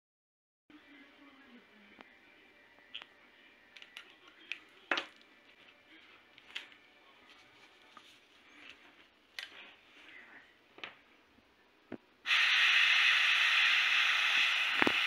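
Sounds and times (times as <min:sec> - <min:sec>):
airbrush hiss of compressed air: 0:12.3 - 0:15.0.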